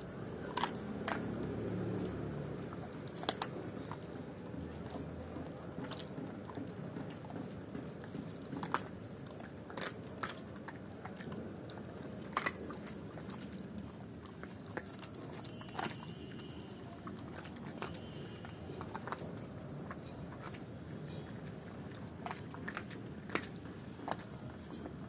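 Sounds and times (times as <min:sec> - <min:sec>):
dog chewing: 0:00.0 - 0:25.0
bones crunching: 0:00.3 - 0:07.0, 0:07.6 - 0:25.0.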